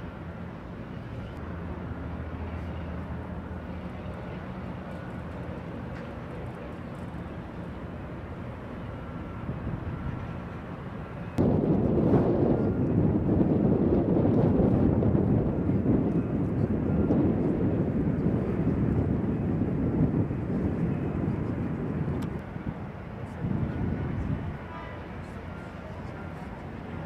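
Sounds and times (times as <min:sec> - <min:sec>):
wind buffeting on microphone: 0:09.3 - 0:25.2.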